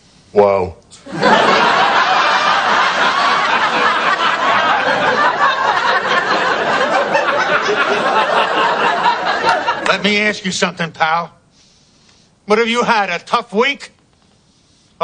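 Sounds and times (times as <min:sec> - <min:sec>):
studio audience laughing: 0:01.0 - 0:10.2.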